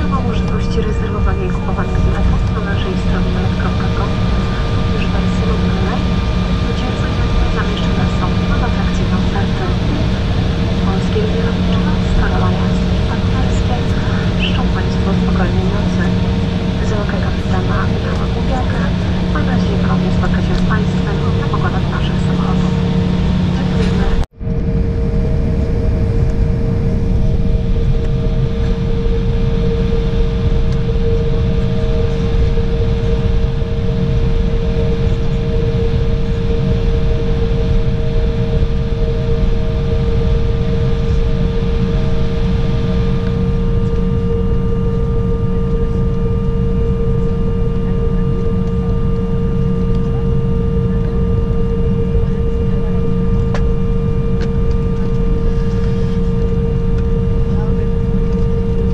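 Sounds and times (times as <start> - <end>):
jet engines humming and whining: 0.0 - 58.9.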